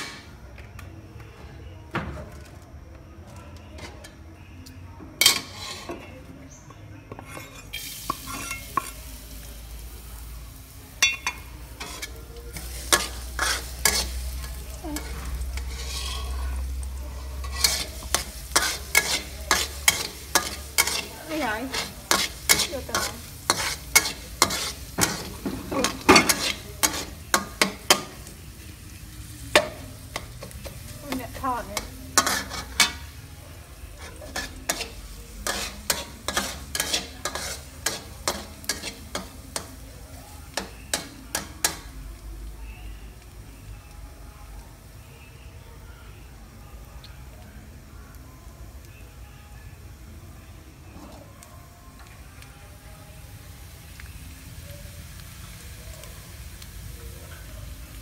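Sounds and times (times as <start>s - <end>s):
aromatics sizzling in oil: 3.2s - 58.0s
metal spatula scraping wok: 5.2s - 9.4s, 11.0s - 39.8s.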